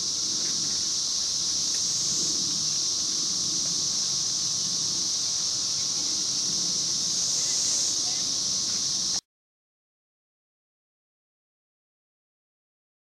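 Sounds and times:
cicadas buzzing: 0.0 - 9.2.

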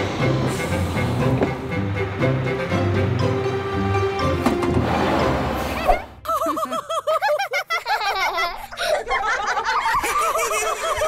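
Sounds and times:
cartoon characters laughing: 5.7 - 11.0.

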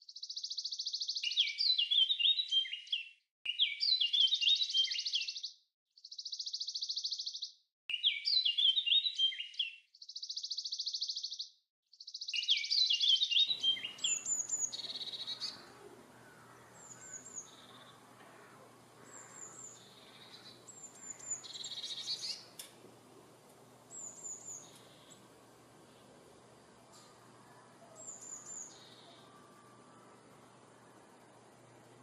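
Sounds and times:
songbird trilling: 13.4 - 26.1, 26.9 - 30.2
faint outdoor hum: 13.5 - 32.0.

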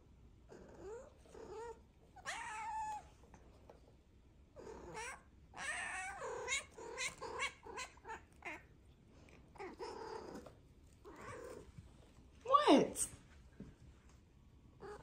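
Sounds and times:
cat meowing: 0.7 - 3.1, 4.6 - 8.7, 11.1 - 11.6.

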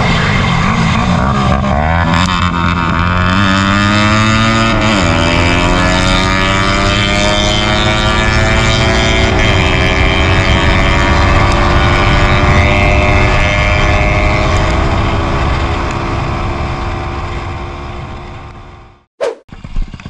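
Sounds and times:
motorcycle engine running: 0.0 - 20.0
wind rushing past: 19.2 - 19.4.

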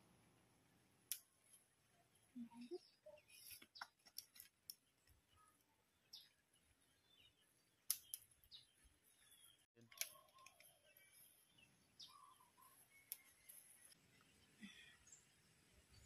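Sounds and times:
faint bird chirps: 1.9 - 4.0, 4.7 - 16.0
branches clicking and snapping: 3.7 - 5.2.

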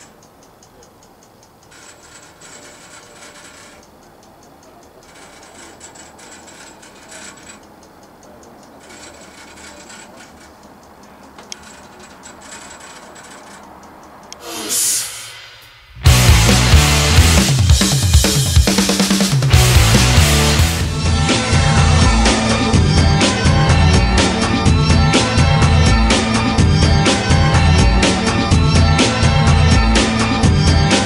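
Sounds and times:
mechanical ticking and rasping: 0.0 - 14.4, 15.6 - 31.0
short hiss: 14.4 - 15.9.

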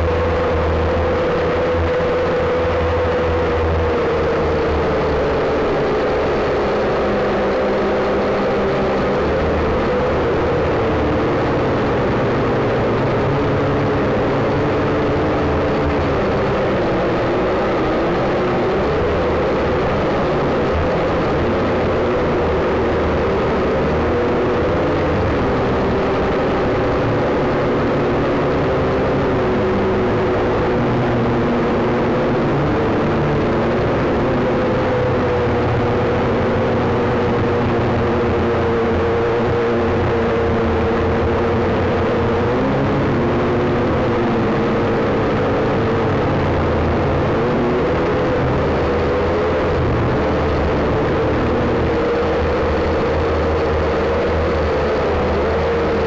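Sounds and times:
drone propellers whining: 0.0 - 56.0.

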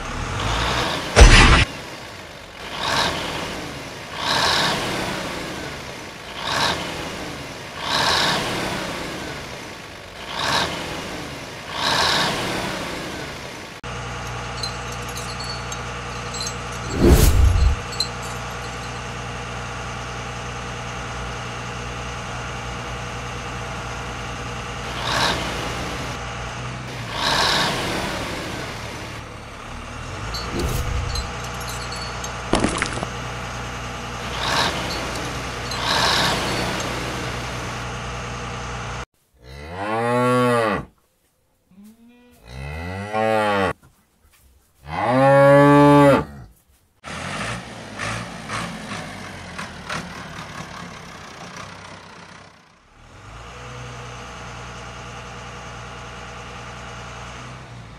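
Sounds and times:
engine hum: 0.0 - 39.1, 47.0 - 57.9
cow mooing: 41.8 - 43.7, 44.9 - 46.5.

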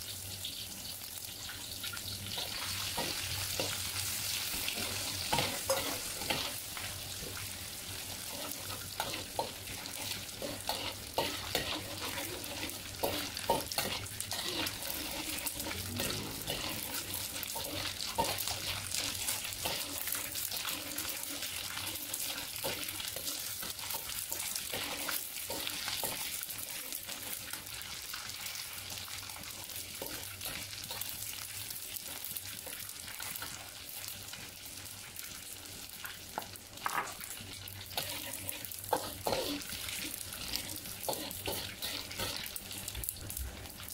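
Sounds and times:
fish sizzling in hot oil: 0.0 - 43.9
metal spatula scraping a wok: 4.7 - 6.6, 8.1 - 27.4, 37.9 - 42.7.

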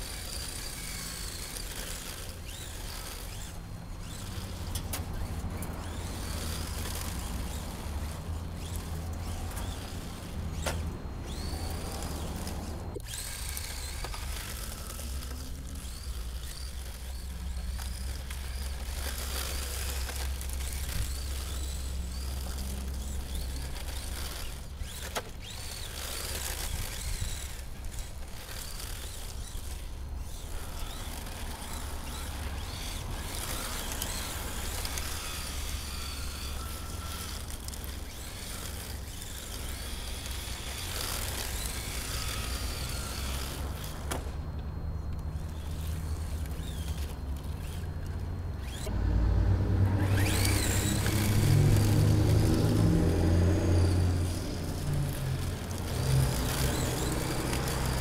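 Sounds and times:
electric motor whining: 0.0 - 58.0
truck engine passing: 0.0 - 58.0.

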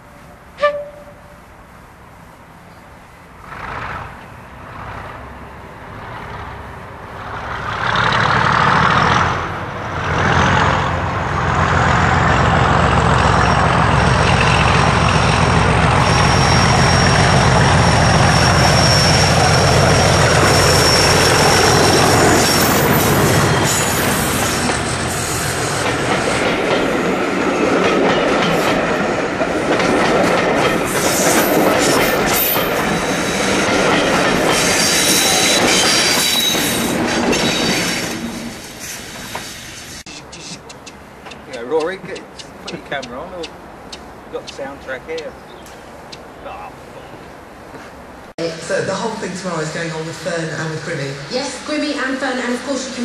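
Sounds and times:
diesel locomotive engine: 0.0 - 53.0
high steady whistle: 0.6 - 1.2, 16.0 - 24.4
wheels clattering over rail joints: 17.4 - 39.6.

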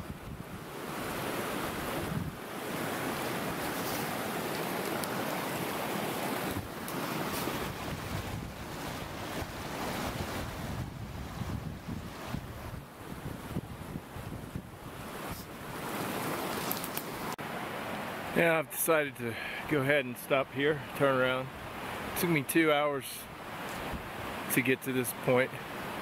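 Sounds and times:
wind gusting on microphone: 0.0 - 17.3, 23.3 - 24.5
mountain stream rushing: 0.0 - 26.0.

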